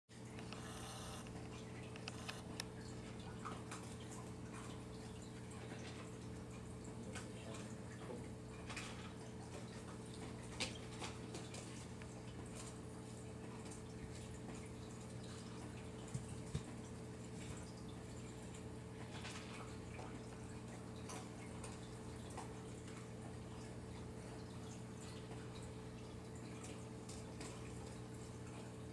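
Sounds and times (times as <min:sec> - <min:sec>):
steady low hum: 0:00.2 - 0:05.2.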